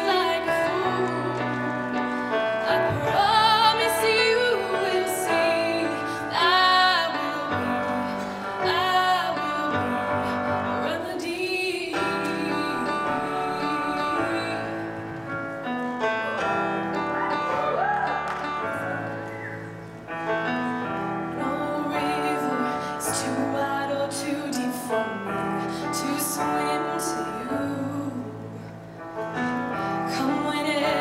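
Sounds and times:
woman singing a slow ballad: 0:00.0 - 0:14.9, 0:21.2 - 0:28.8, 0:29.7 - 0:31.0
piano accompaniment: 0:00.0 - 0:31.0.

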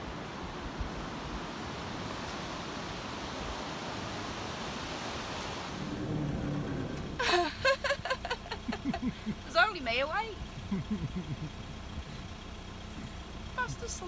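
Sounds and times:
surf breaking on a beach: 0:00.0 - 0:08.1.

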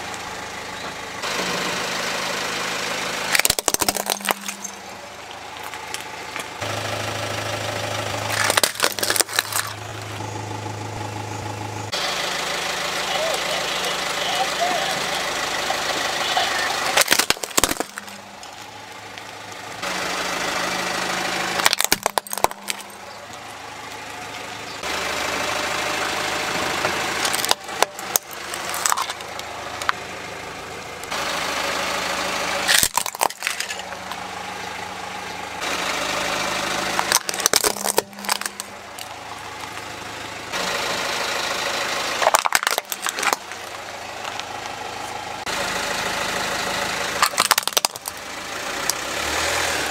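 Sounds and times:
car engine idling: 0:00.0 - 0:49.9
plastic toys cracking under tyre: 0:03.3 - 0:04.8, 0:08.3 - 0:10.0, 0:16.9 - 0:19.3, 0:21.6 - 0:23.4, 0:27.2 - 0:30.0, 0:32.7 - 0:34.2, 0:36.8 - 0:39.9, 0:42.1 - 0:44.5, 0:47.2 - 0:48.2.

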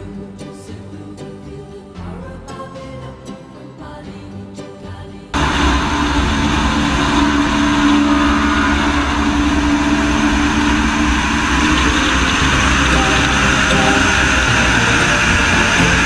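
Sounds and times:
aircraft engine in flight: 0:05.4 - 0:16.0.

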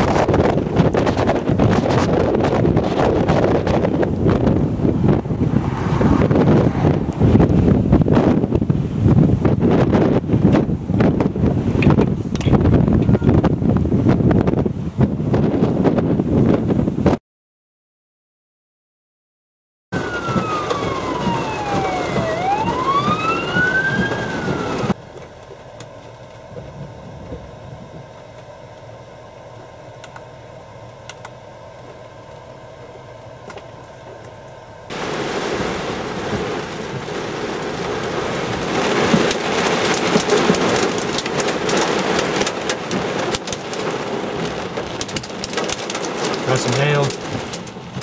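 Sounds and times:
siren wailing: 0:20.0 - 0:25.0
heavy rain rushing: 0:20.0 - 0:25.1, 0:34.9 - 0:48.0.

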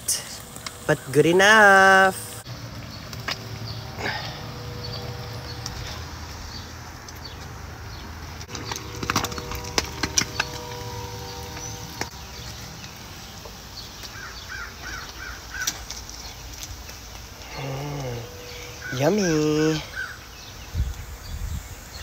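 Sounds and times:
steady tone humming: 0:00.0 - 0:14.8, 0:16.0 - 0:22.0
birds chirping: 0:00.0 - 0:22.0.

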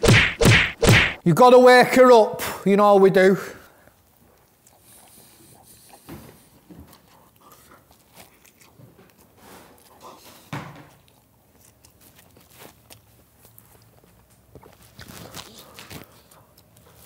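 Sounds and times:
man chewing food: 0:03.7 - 0:17.0.

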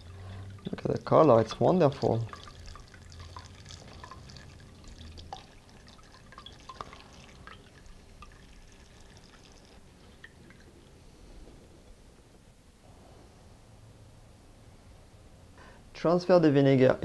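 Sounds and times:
small drips and ticks: 0:00.0 - 0:11.0
liquid trickling: 0:00.0 - 0:11.4.

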